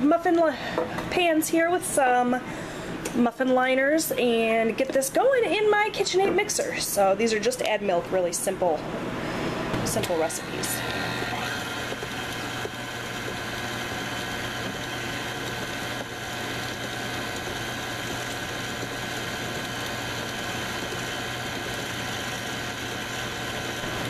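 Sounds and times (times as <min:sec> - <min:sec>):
stand mixer motor humming: 0:09.6 - 0:24.0.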